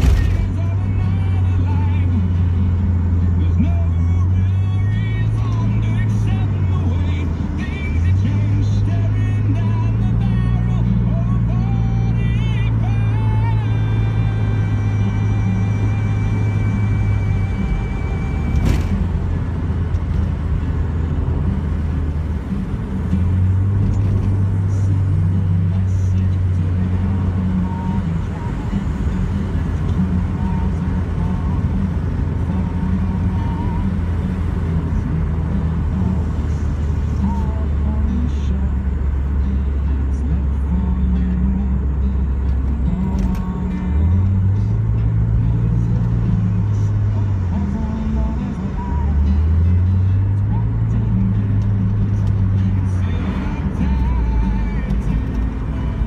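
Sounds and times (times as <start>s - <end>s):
car engine drone: 0.0s - 56.0s
tyre and road noise: 0.0s - 56.0s
click: 43.0s - 43.5s.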